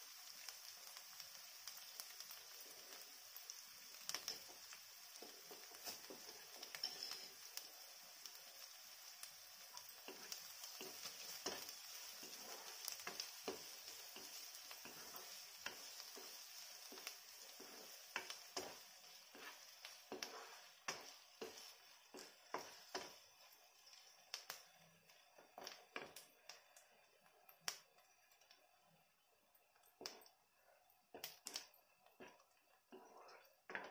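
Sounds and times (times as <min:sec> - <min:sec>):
vegetables sizzling in oil: 0:00.0 - 0:33.9
spatula knocking and scraping pan: 0:05.2 - 0:07.3, 0:10.0 - 0:23.2, 0:32.2 - 0:33.9.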